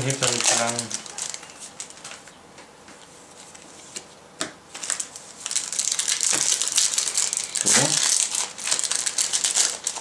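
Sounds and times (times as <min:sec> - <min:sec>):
plastic wrappers crinkling: 0:00.0 - 0:02.3, 0:04.7 - 0:10.0.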